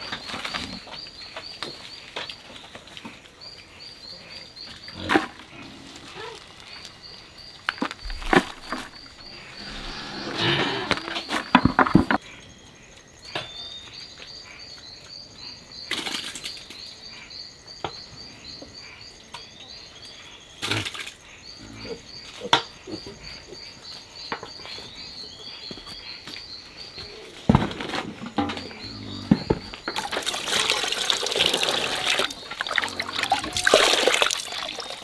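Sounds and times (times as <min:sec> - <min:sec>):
insects chirping: 0:00.0 - 0:35.0
leaves rustling into a bucket: 0:29.9 - 0:35.0.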